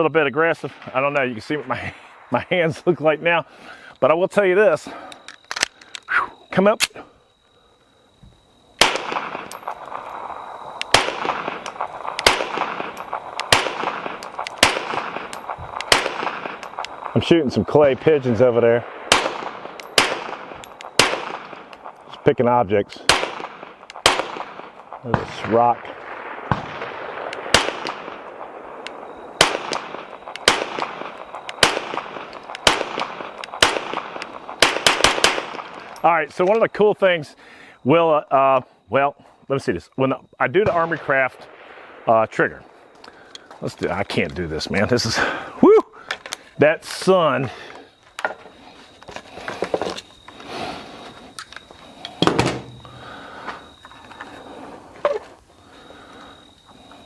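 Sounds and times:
pistol shots with ringing echo: 8.8s - 22.0s, 23.0s - 36.0s, 52.2s - 53.8s.

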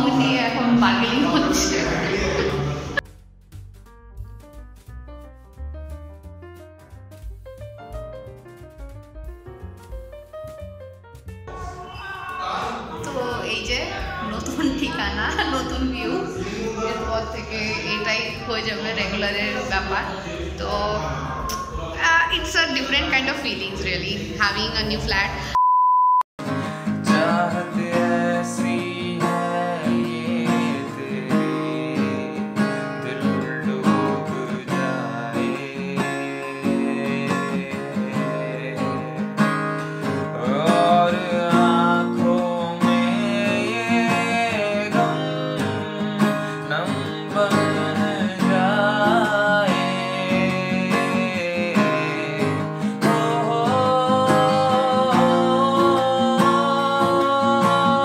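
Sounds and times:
man singing: 0.0s - 3.0s, 26.9s - 39.4s, 40.0s - 58.0s
acoustic guitar: 0.0s - 25.6s, 26.4s - 58.0s.

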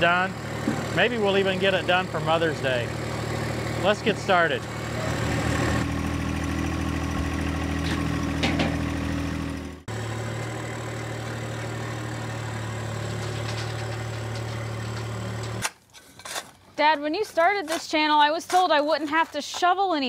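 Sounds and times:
tractor engine running: 0.0s - 15.9s.

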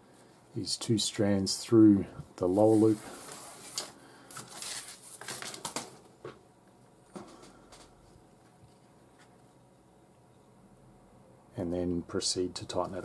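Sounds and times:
paracord rustling and sliding: 2.5s - 5.8s.

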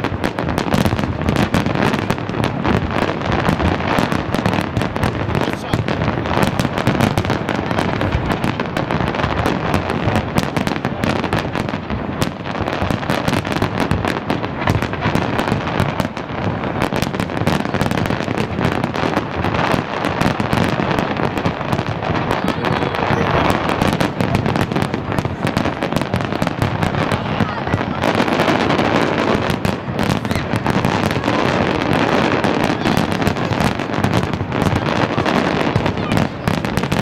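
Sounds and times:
fireworks bangs and crackles: 0.0s - 37.0s.

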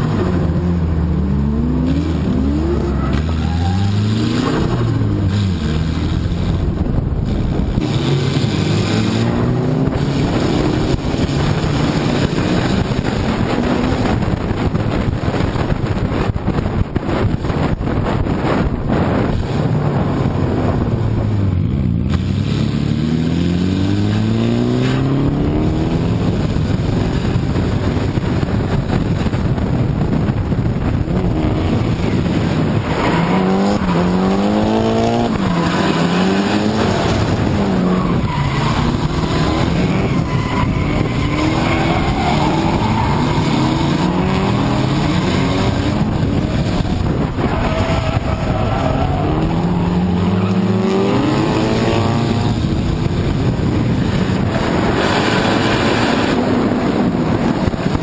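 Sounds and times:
car engine revving hard: 0.0s - 14.8s, 21.4s - 28.5s, 30.9s - 58.0s
tyres squealing and skidding: 2.4s - 5.6s, 32.6s - 51.6s.

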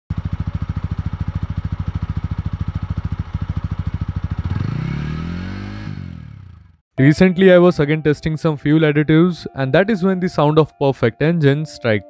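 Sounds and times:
motorcycle engine idling: 0.1s - 6.8s.

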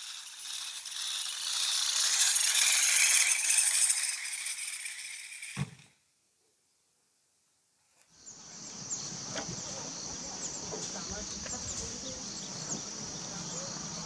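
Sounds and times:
high-pitched insect buzz: 0.0s - 5.8s, 8.2s - 14.0s
metallic rattling of winch gear: 0.0s - 5.9s
thump: 5.6s - 5.8s.

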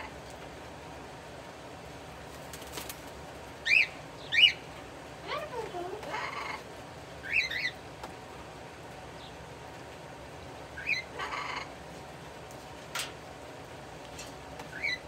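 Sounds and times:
bird chirping: 3.6s - 4.7s, 7.2s - 7.8s, 10.8s - 11.5s, 14.7s - 15.0s.

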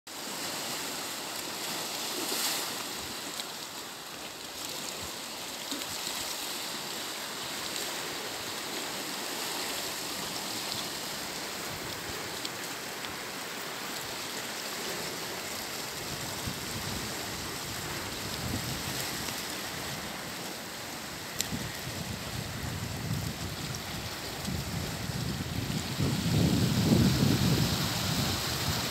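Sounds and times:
waves washing among rocks: 0.1s - 28.9s
wind buffeting microphone: 21.2s - 28.9s.

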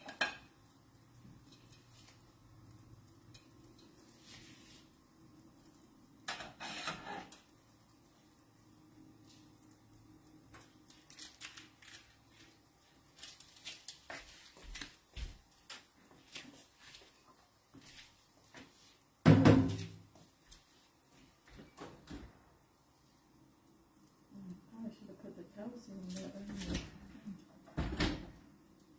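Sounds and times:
kitchen things clicking and knocking: 0.0s - 4.4s, 5.6s - 7.8s, 10.4s - 20.2s, 26.2s - 28.4s.

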